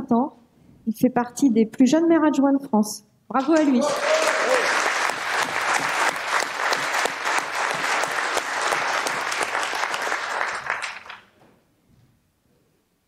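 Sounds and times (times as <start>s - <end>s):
audience applauding: 3.4s - 11.3s.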